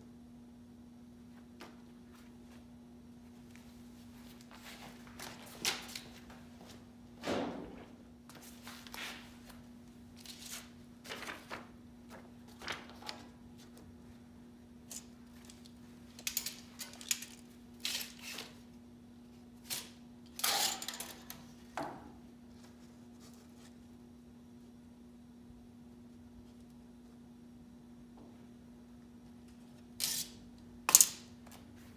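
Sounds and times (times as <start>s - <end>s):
faint steady hum: 0.0s - 31.9s.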